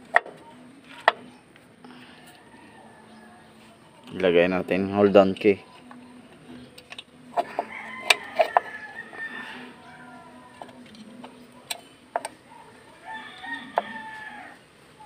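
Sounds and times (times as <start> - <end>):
rooster crowing: 2.0 - 3.8, 7.4 - 11.0, 12.5 - 14.7.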